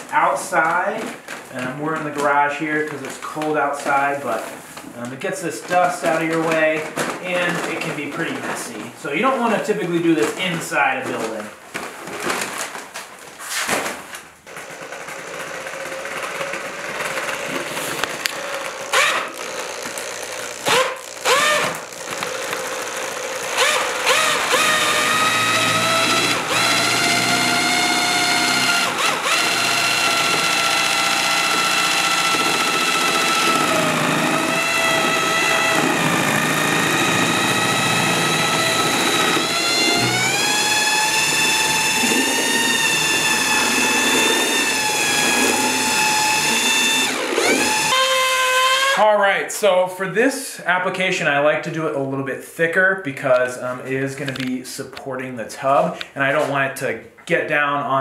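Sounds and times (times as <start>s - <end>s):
drill mixing mortar in bucket: 0.0s - 49.1s.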